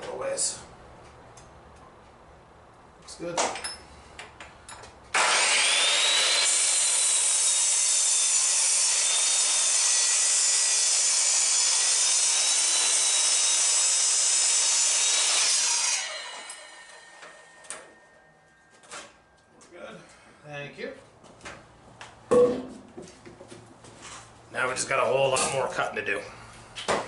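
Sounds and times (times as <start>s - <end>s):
miter saw cutting wood: 5.1s - 18.1s.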